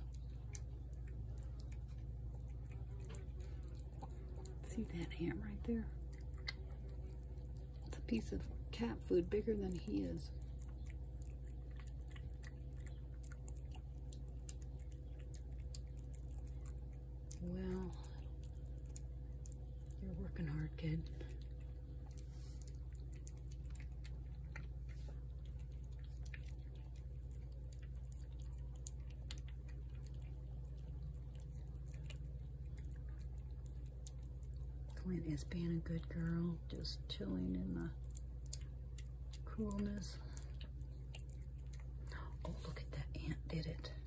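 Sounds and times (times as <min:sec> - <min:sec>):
steady low hum: 0:00.0 - 0:44.0
cat crunching dry food: 0:09.8 - 0:36.2.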